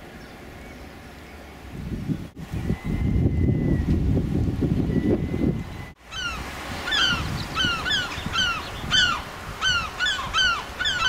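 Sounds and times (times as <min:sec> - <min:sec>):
wind buffeting microphone: 0:01.6 - 0:11.0
geese honking: 0:06.1 - 0:11.0.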